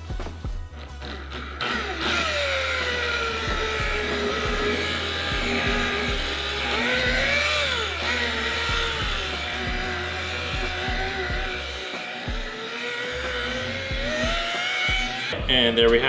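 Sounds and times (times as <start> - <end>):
background music with steady beat: 0.0 - 16.0
rotary polisher motor whine: 0.8 - 16.0.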